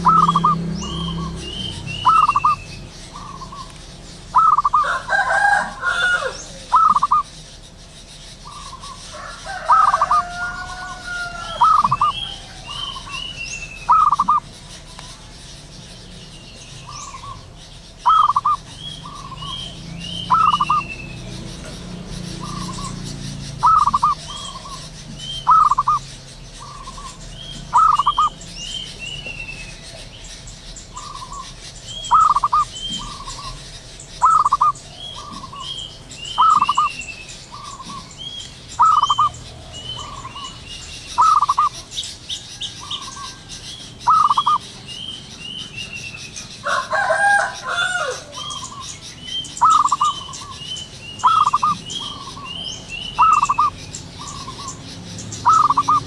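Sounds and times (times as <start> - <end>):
faint high chirps: 0.0 - 4.8
dove cooing: 0.0 - 7.7, 8.4 - 16.2, 16.8 - 28.4, 30.9 - 38.2, 38.8 - 40.6, 41.2 - 41.9, 42.6 - 44.6, 49.6 - 56.0.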